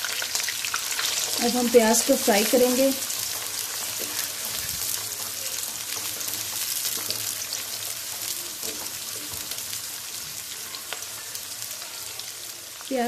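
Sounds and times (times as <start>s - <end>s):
onions sizzling in hot oil: 0.0s - 13.0s
wooden spatula stirring: 3.0s - 11.1s.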